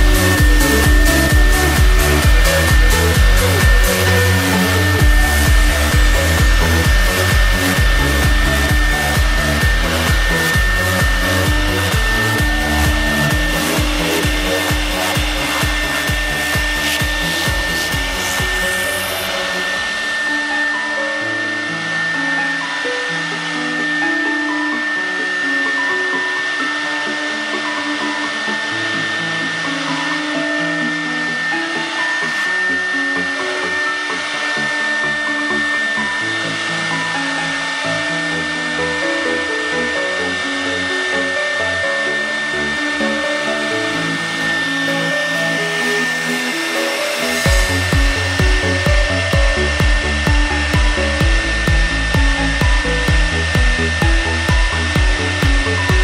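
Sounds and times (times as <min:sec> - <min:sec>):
heavy pulsing beat: 0:00.0 - 0:24.3, 0:41.6 - 0:56.0
background music: 0:00.0 - 0:56.0
router spindle high whine: 0:00.0 - 0:56.0.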